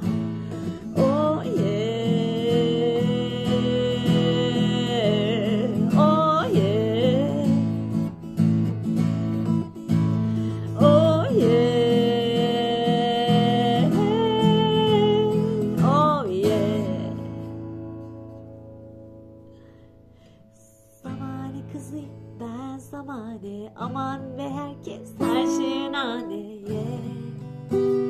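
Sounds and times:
acoustic guitar strumming: 0:00.0 - 0:28.0
woman singing wordless held notes: 0:00.6 - 0:07.8, 0:10.6 - 0:17.4, 0:20.6 - 0:27.4.

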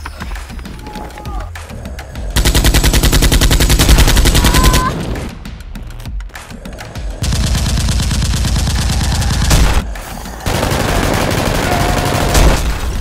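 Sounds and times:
rapid automatic gunfire: 0:02.4 - 0:05.1, 0:07.2 - 0:13.0.

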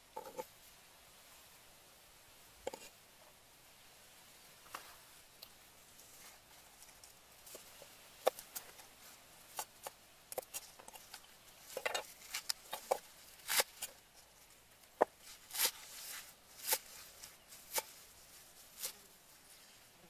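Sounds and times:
stalks rustling and scraping: 0:00.1 - 0:00.6, 0:04.6 - 0:20.0.

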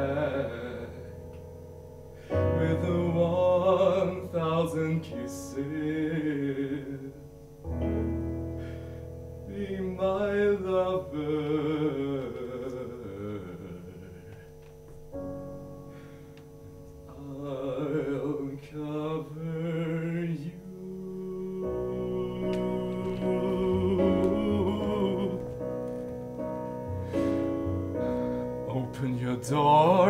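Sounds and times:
man singing with vibrato: 0:00.0 - 0:01.4, 0:02.3 - 0:08.6, 0:09.4 - 0:14.6, 0:17.1 - 0:25.8, 0:28.6 - 0:30.0
piano accompaniment: 0:00.0 - 0:30.0.

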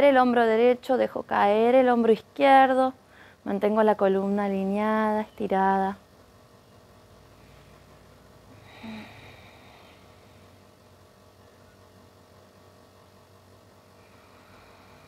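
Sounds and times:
background hiss: 0:00.0 - 0:15.0
low hum: 0:02.7 - 0:15.0
soft breath: 0:03.0 - 0:03.4, 0:07.2 - 0:10.8, 0:13.8 - 0:15.0.

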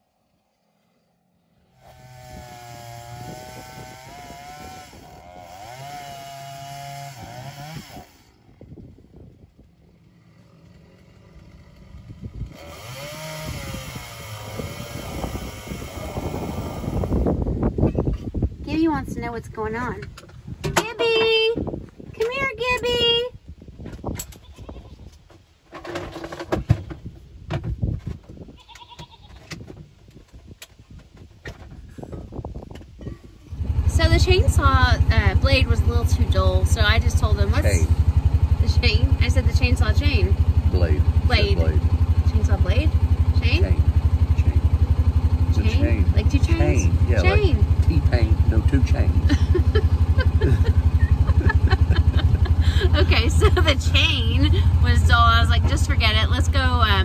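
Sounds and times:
small petrol engine running: 0:00.0 - 0:17.7, 0:33.5 - 0:57.0
goats bleating: 0:28.6 - 0:29.4.

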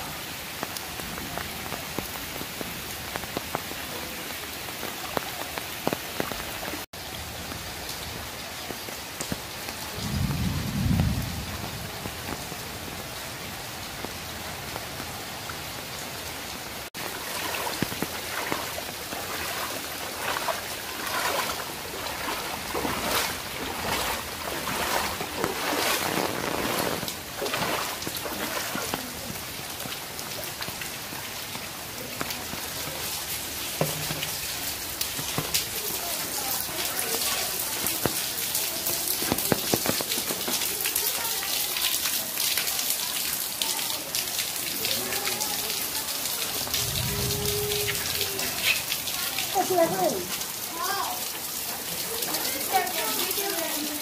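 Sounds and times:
rain falling on water: 0:00.0 - 0:54.0
footsteps wading through water: 0:16.9 - 0:30.0
low rumble: 0:46.6 - 0:48.6.

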